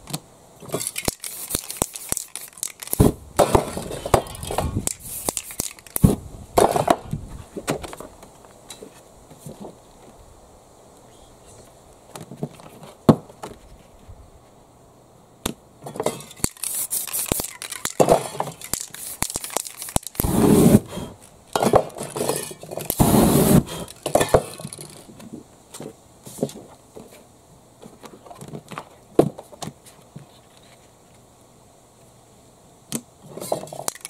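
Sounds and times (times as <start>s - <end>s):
clicks and clinks: 0.7s - 3.0s, 16.1s - 20.2s, 33.7s - 34.0s
spray can rattling: 0.7s - 3.1s, 4.1s - 6.1s, 16.2s - 20.8s, 33.7s - 34.0s
spray can hissing: 0.8s - 3.1s, 4.8s - 6.1s, 16.4s - 20.8s, 23.0s - 23.7s.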